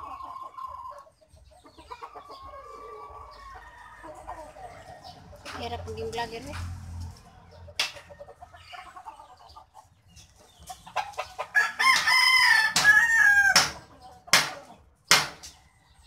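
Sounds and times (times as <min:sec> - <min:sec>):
rooster crowing: 0:02.6 - 0:05.0, 0:11.5 - 0:13.8.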